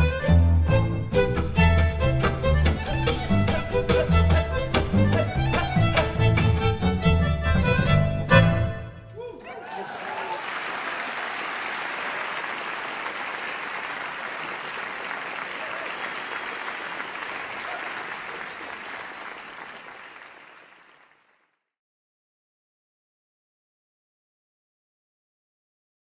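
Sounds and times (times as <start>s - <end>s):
audience applauding: 9.2s - 21.5s.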